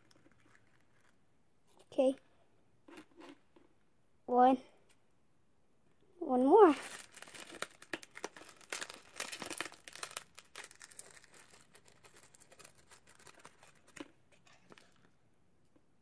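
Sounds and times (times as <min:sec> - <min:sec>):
paper packet tearing and crinkling: 0:06.7 - 0:14.8.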